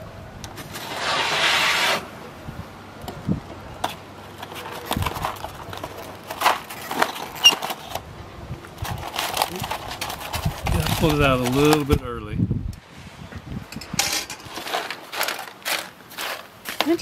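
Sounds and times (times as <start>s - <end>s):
aluminium foil crinkling: 4.3s - 8.0s, 8.8s - 12.0s, 14.5s - 17.0s.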